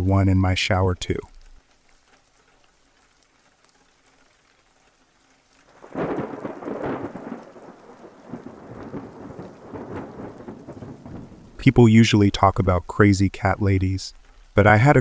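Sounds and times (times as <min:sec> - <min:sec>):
rain: 0:00.0 - 0:15.0
rolling thunder rumble: 0:05.8 - 0:12.8.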